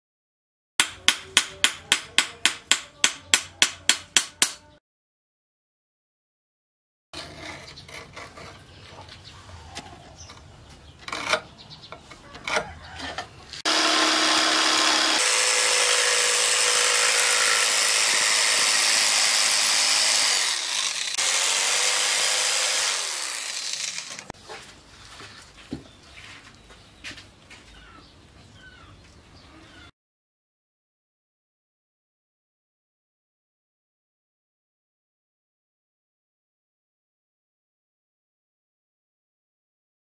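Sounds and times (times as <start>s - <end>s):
sharp knocks: 0.8s - 4.7s
electric jigsaw cutting wood: 13.6s - 24.3s.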